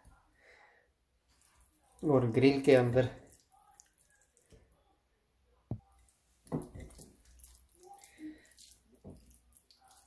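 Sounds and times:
wet squishing of hands: 1.3s - 4.8s, 5.8s - 10.0s.

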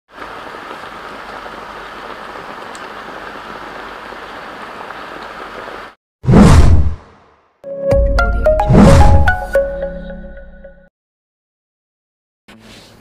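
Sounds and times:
steady hiss like rain: 0.1s - 6.0s.

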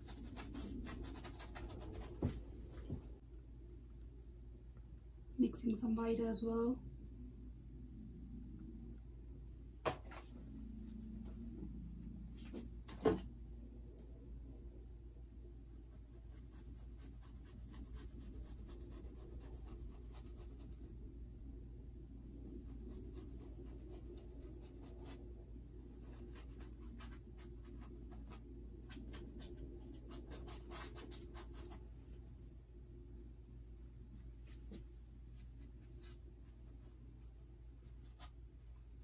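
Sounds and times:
paintbrush scratching on canvas: 0.0s - 2.3s, 16.1s - 20.9s, 25.8s - 31.8s
low steady hum: 0.0s - 39.0s.

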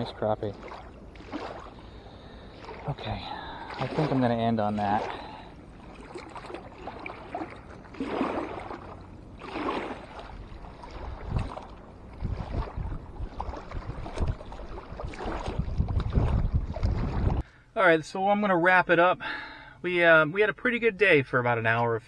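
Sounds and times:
small waves lapping on shore: 0.0s - 17.4s
wind rumble on microphone: 5.8s - 17.4s.

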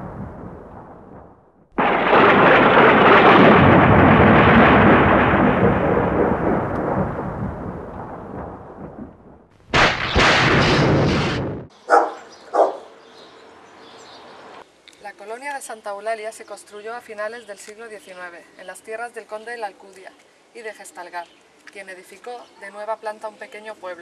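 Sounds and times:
thunder crack: 0.0s - 11.7s
thunder rumbling: 0.0s - 11.7s
dog barking: 11.9s - 12.9s.

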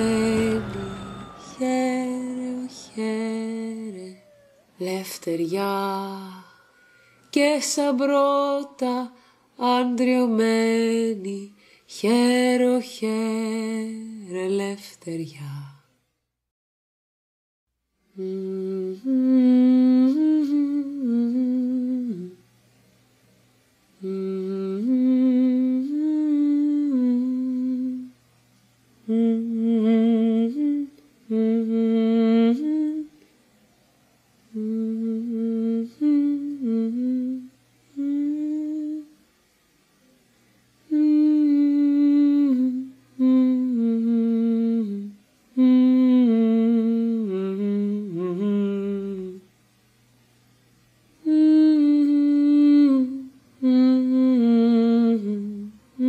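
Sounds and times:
person humming a slow tune: 18.1s - 22.4s, 24.0s - 28.2s, 29.0s - 33.1s, 34.5s - 39.2s, 40.9s - 49.5s, 51.2s - 56.0s.

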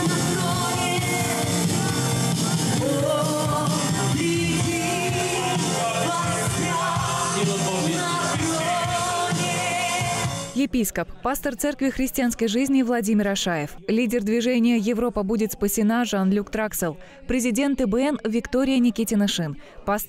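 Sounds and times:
woman singing into a microphone: 0.0s - 10.2s
worship band music: 0.0s - 10.6s.

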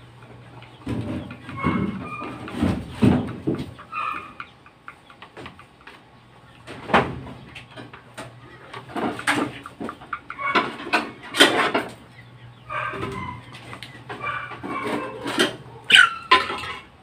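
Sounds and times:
chickens clucking: 0.0s - 17.0s
wood and sheet metal clattering: 0.8s - 4.2s, 6.6s - 12.0s, 14.0s - 15.6s.

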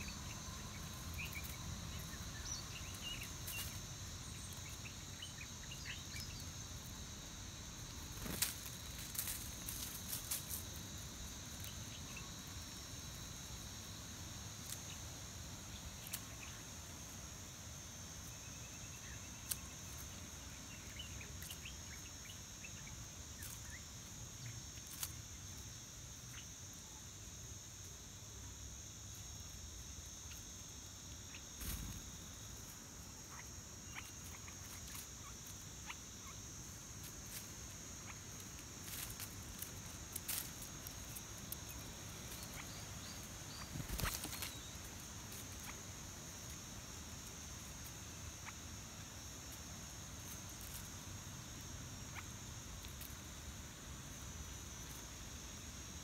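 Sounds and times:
animals pecking and rustling: 0.0s - 5.1s, 7.8s - 12.7s, 24.8s - 25.6s, 31.4s - 53.6s
high-pitched insect drone: 30.1s - 55.7s.

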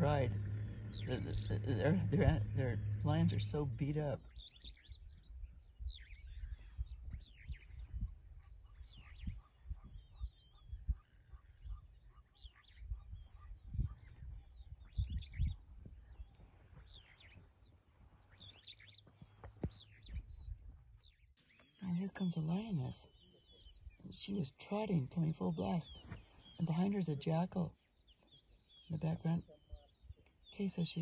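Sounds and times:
low rumble with soft thumps: 0.0s - 11.9s
wild birds chirping: 0.0s - 31.0s.

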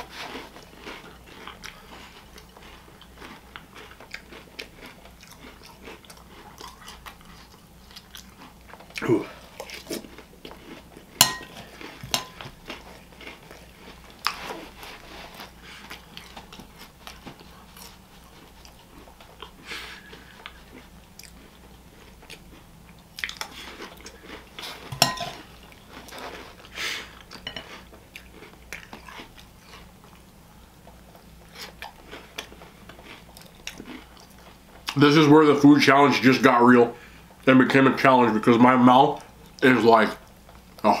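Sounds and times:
person chewing crunchy cereal: 0.0s - 35.7s
spoon clinking against bowl: 11.2s - 12.4s, 24.9s - 25.4s.

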